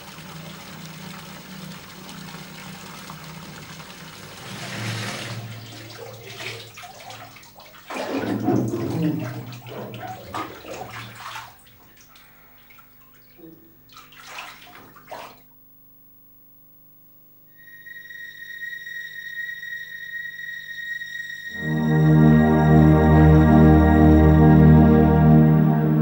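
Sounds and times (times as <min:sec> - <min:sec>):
bathwater splashing and sloshing: 0:00.0 - 0:15.5.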